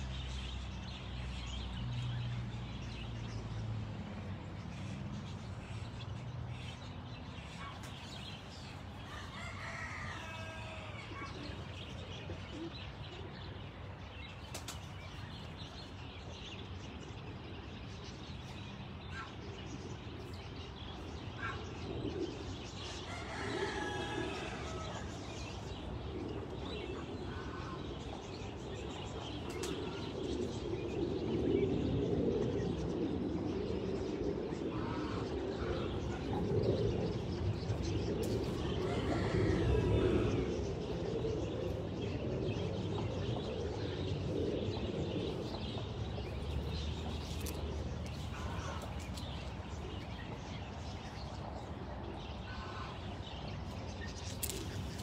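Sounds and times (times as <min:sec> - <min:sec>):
drawn-out fowl calls: 0:09.1 - 0:11.5.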